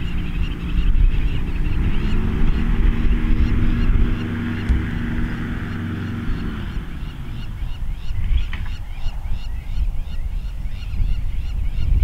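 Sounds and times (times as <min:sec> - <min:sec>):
small engine: 0:00.0 - 0:08.6
birds calling: 0:00.0 - 0:12.0
low uneven rumble: 0:00.0 - 0:12.0.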